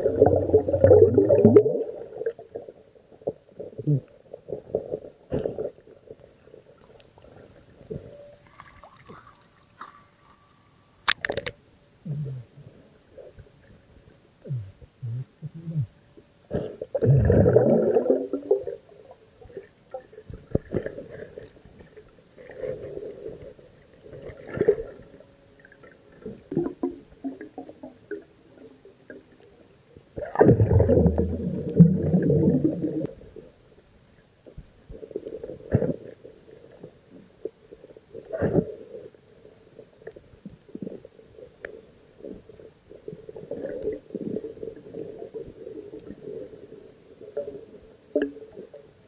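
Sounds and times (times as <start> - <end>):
underwater gurgling and bubbling: 0.0 - 6.0, 16.6 - 29.1, 30.2 - 33.5.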